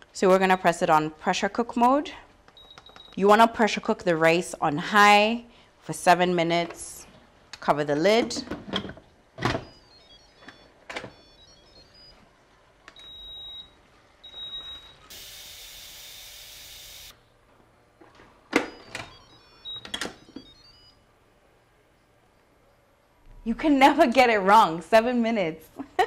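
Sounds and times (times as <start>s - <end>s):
pressure cooker hiss: 15.1s - 17.1s.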